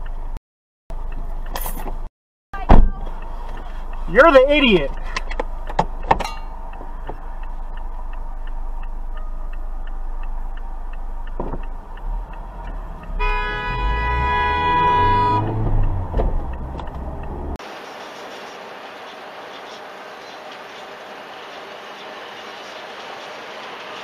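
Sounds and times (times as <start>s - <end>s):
low engine rumble: 0.0s - 24.0s
car indicator ticking: 2.9s - 13.4s, 15.4s - 17.6s
car horn blast: 12.9s - 16.1s.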